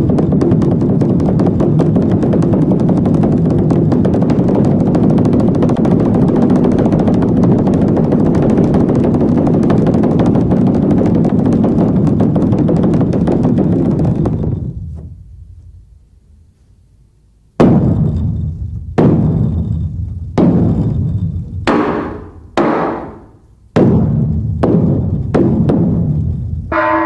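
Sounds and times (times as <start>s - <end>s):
large drum beaten: 0.0s - 15.3s, 17.6s - 27.0s.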